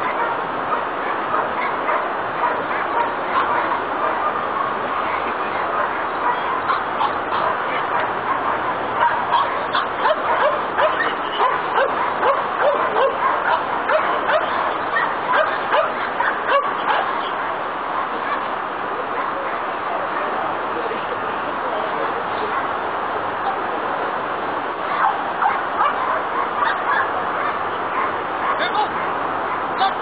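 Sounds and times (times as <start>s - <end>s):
dog barking rapidly: 0.0s - 4.8s, 5.5s - 18.5s, 24.9s - 30.0s.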